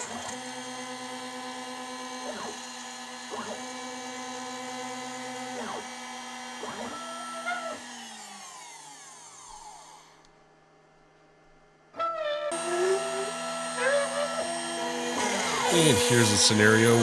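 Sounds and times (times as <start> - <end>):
router spindle cutting wood: 0.0 - 10.3, 12.0 - 17.0
spindle spinning down whine: 12.0 - 17.0.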